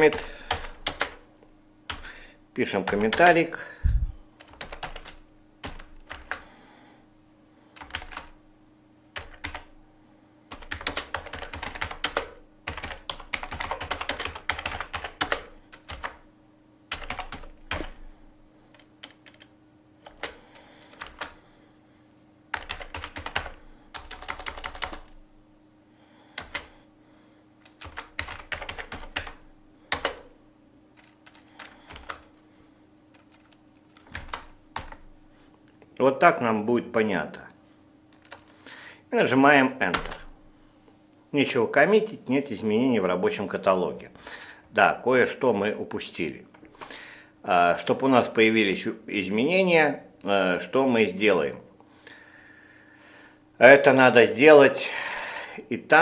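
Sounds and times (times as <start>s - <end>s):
typing on computer keyboard: 0.0s - 1.2s, 2.8s - 3.4s, 4.4s - 6.4s, 7.8s - 8.4s, 9.2s - 9.7s, 10.5s - 16.2s, 16.9s - 17.9s, 18.7s - 21.4s, 22.5s - 25.2s, 26.4s - 26.7s, 27.6s - 30.3s, 31.0s - 32.3s, 33.1s - 35.0s, 38.1s - 38.4s
faint steady hum: 0.0s - 56.0s.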